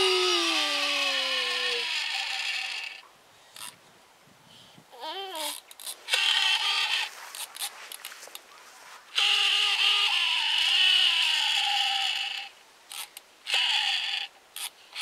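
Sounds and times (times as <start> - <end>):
toddler voice holding notes: 0.0 - 2.0, 4.9 - 5.6
crinkly rustles: 6.8 - 9.2.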